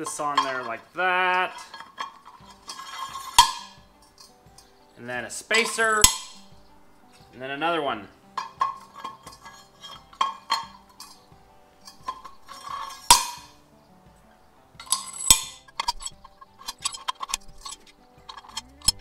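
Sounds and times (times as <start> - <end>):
metal blades clinking on shaft: 0.0 - 4.4, 5.5 - 6.4, 14.8 - 19.0
loud metal clanks: 1.5 - 4.7, 5.6 - 6.6, 11.8 - 13.6.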